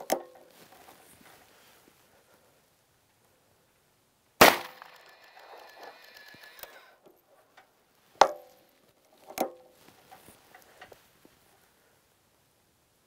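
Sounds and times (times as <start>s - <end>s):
revolver gunshot: 4.4s - 5.1s.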